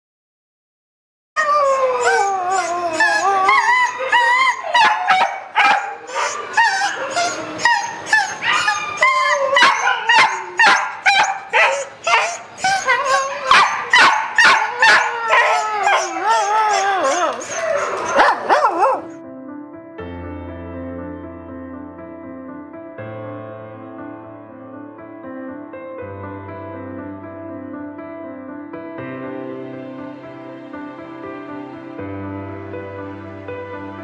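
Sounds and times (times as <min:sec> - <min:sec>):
dogs whining: 0:01.4 - 0:19.2
dogs barking: 0:02.0 - 0:19.2.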